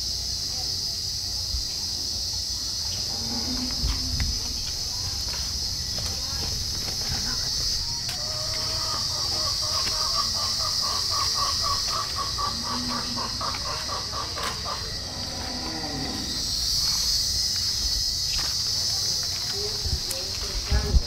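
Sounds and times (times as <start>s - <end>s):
insects droning: 0.0s - 21.0s
lower animal calls: 3.0s - 17.0s.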